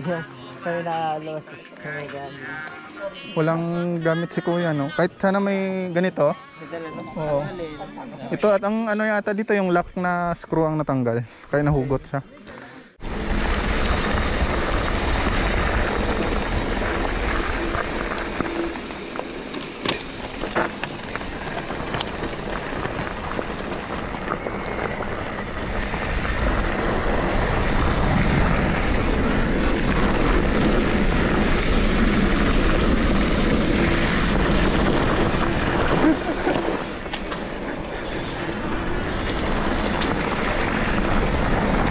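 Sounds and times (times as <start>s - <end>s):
wind rush on microphone: 13.0s - 41.9s.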